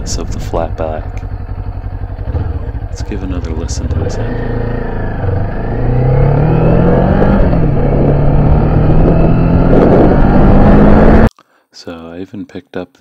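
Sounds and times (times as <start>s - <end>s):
motorcycle engine pulling: 0.0s - 11.3s
wind noise on microphone: 7.2s - 10.9s.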